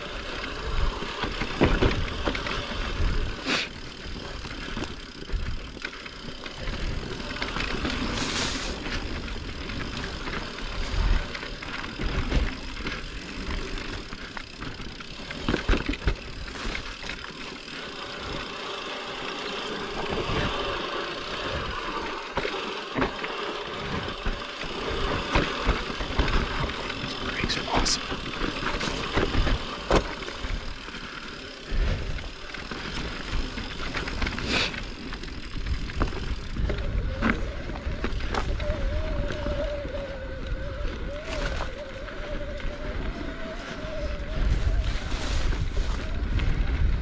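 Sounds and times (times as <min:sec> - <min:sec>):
bike tyre noise: 0:00.0 - 0:47.0
bike knocks and rattles: 0:00.3 - 0:39.7
wind rumble on microphone: 0:35.1 - 0:47.0.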